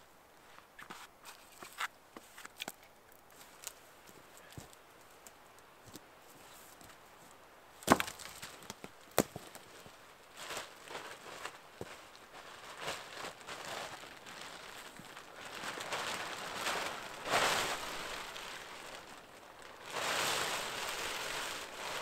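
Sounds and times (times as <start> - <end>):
plastic tarp rustling: 7.9 - 22.0.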